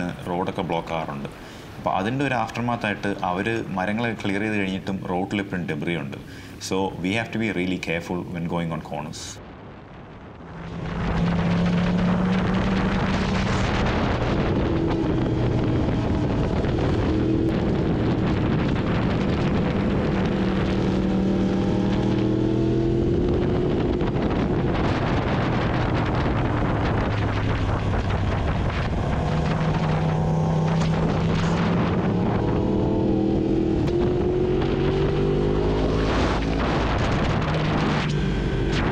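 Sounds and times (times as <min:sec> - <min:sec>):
wind on microphone: 0:09.4 - 0:38.9
motorcycle engine revving: 0:10.5 - 0:38.9.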